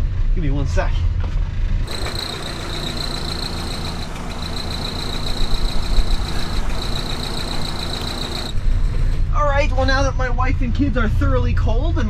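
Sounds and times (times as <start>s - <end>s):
high-pitched whine: 1.9s - 9.0s
car engine idling: 1.9s - 9.7s.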